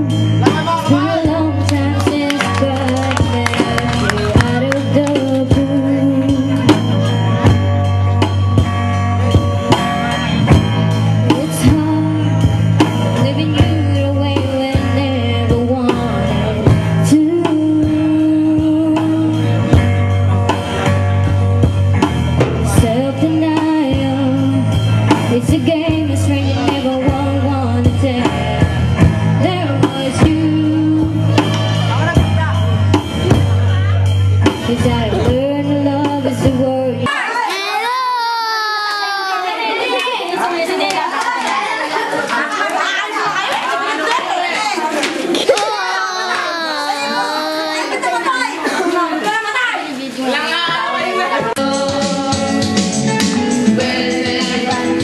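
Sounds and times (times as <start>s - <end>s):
person singing: 0.0s - 6.9s, 45.5s - 48.0s, 51.6s - 55.0s
bass line: 0.0s - 37.1s
drums: 0.0s - 37.3s, 44.9s - 55.0s.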